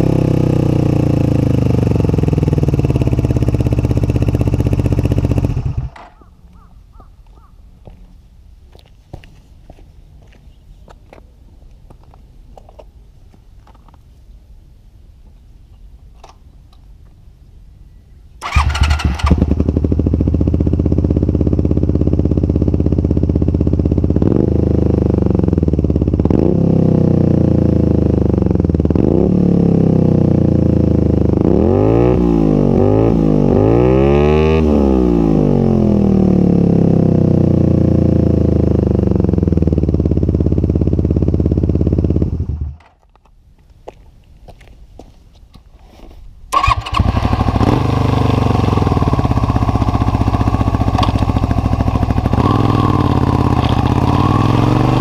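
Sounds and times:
motorcycle engine idling and revving: 0.0 - 8.0, 18.4 - 43.1, 46.5 - 55.0.

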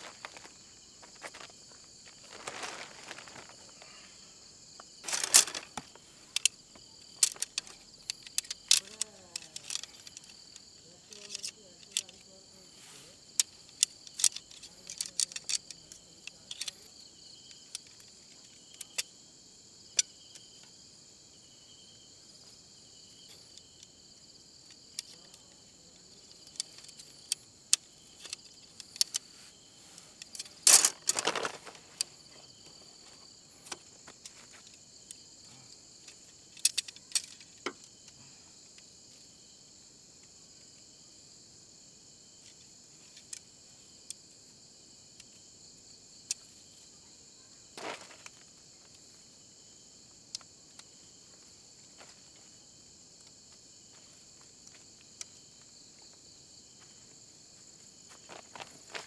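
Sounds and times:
crickets chirping: 0.0 - 59.0
objects clicking and clinking: 5.0 - 6.6, 7.2 - 10.4, 30.2 - 32.1.

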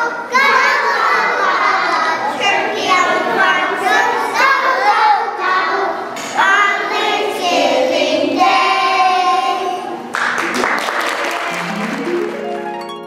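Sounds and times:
young children singing: 0.0 - 10.1.

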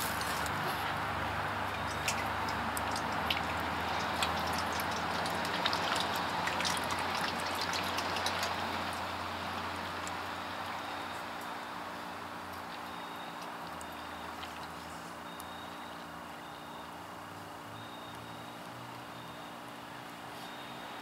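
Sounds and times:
fluid trickling through a funnel: 0.0 - 16.4.

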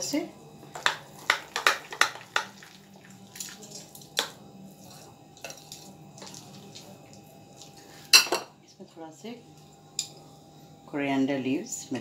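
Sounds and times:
spoon stirring thick batter: 0.7 - 8.1.

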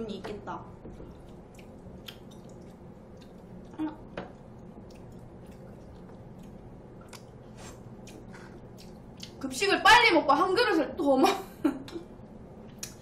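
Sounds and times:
chewing: 1.0 - 9.4
wet mouth clicks: 1.5 - 3.4, 8.8 - 9.4.

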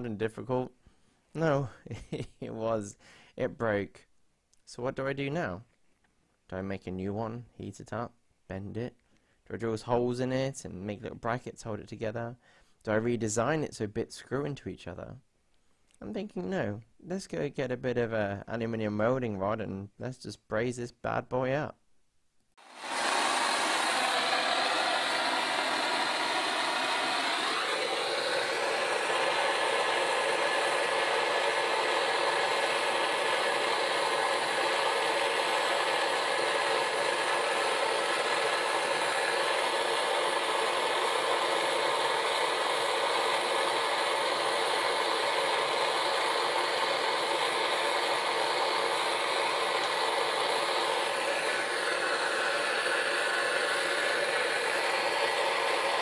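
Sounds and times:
gas blowtorch hissing: 22.6 - 56.0.

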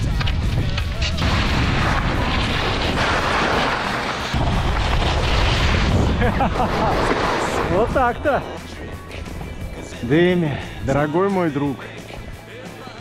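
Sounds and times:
skis scraping over snow: 2.2 - 8.8.

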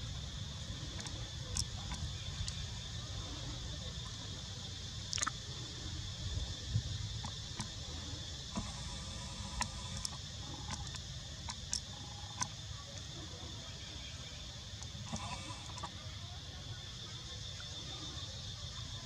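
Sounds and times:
high insect drone: 0.0 - 19.0
faint clicks: 0.9 - 2.6, 5.1 - 5.4, 7.2 - 7.8, 8.5 - 13.1, 14.8 - 16.0.

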